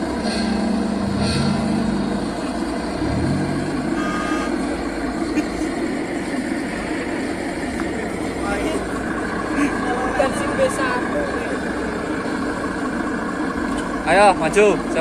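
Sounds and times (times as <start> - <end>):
simulated diesel truck engine: 0.0 - 15.0
steady noisy background: 0.0 - 15.0
higher electronic tones: 3.0 - 4.9.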